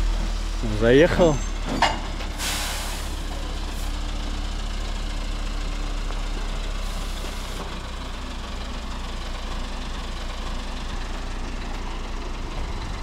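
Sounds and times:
truck diesel engine running: 0.0s - 13.0s
short hiss: 2.4s - 3.2s.

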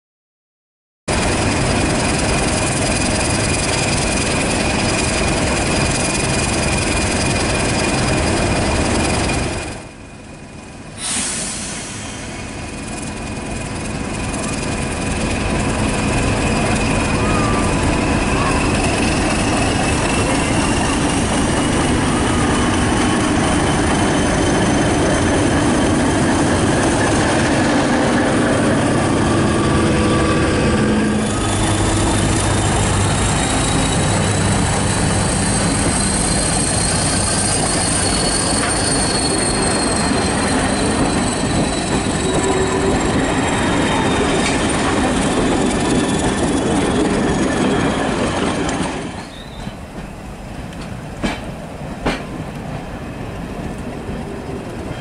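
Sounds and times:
diesel locomotive engine rumbling: 1.1s - 55.0s
thin high whining tones: 29.0s - 47.4s.

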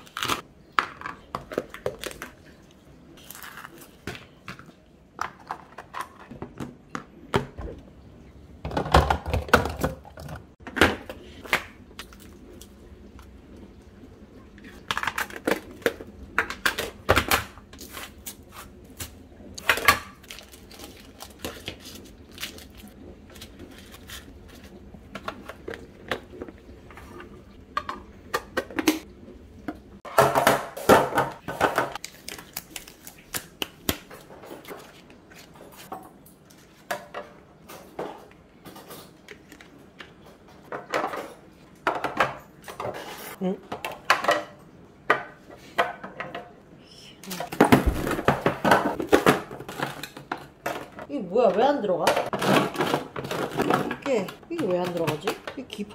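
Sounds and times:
plastic containers clicking and clattering: 8.6s - 12.2s, 47.3s - 55.9s.

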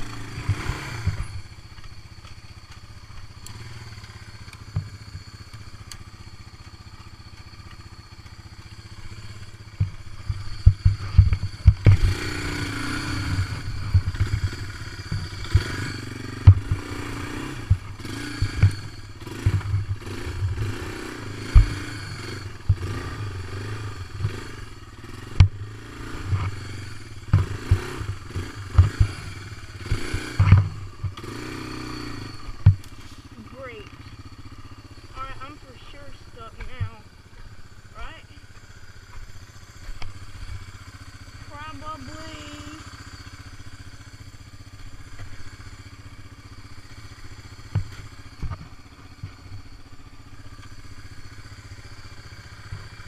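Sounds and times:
thumps and rattles over bumps: 0.0s - 12.6s, 13.2s - 20.7s, 21.4s - 23.2s, 26.2s - 31.4s, 32.3s - 34.2s, 35.0s - 40.7s, 47.6s - 50.0s
quad bike engine revving: 0.0s - 53.0s.

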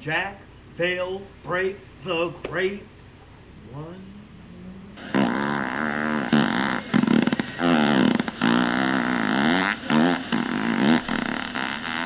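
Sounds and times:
electronic fart noises: 5.0s - 12.0s.

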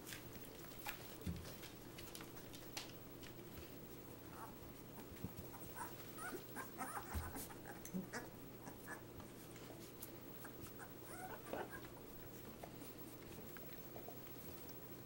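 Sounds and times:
puppies squeaking and whimpering: 5.5s - 9.0s, 10.4s - 11.9s
soft scuffling on rug: 9.2s - 10.8s.

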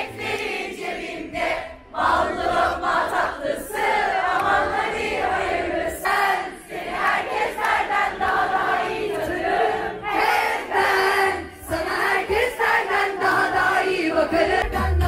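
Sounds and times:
crowd singing a pop song: 0.0s - 15.0s.

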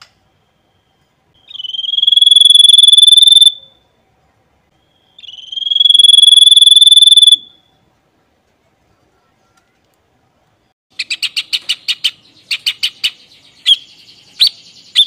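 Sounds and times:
bird giving rapid high trills: 1.5s - 3.6s, 5.2s - 7.5s.

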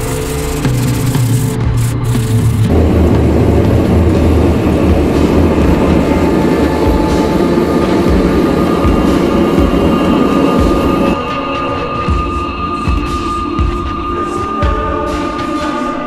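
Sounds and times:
gas forge burner roaring: 0.0s - 11.3s
music: 0.0s - 16.0s.

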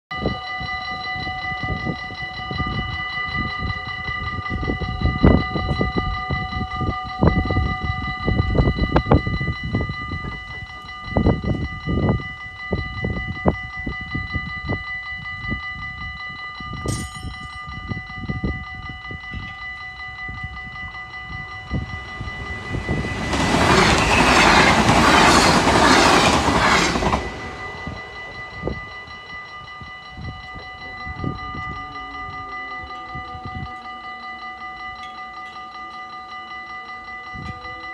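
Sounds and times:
level-crossing warning bells: 0.1s - 37.9s
train passing at speed: 19.7s - 31.4s.

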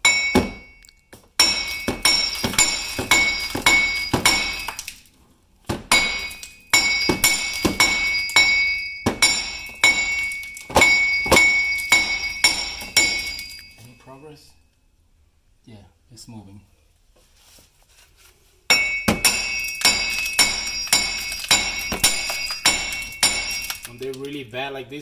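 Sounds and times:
hammer striking metal: 0.0s - 0.8s, 1.4s - 4.8s, 5.8s - 13.8s, 18.7s - 24.2s.

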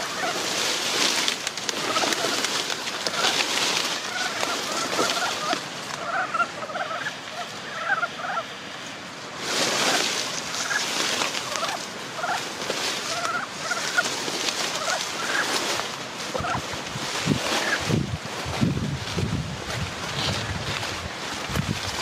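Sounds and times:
frogs croaking: 0.0s - 8.9s.

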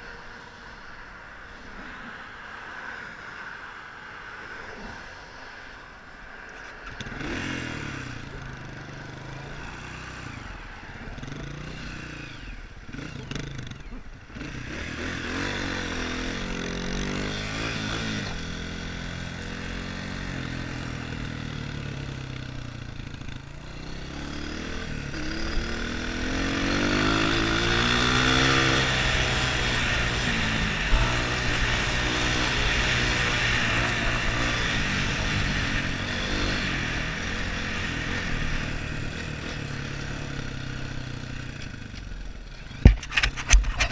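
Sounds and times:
dirt bike engine revving: 7.0s - 41.8s.

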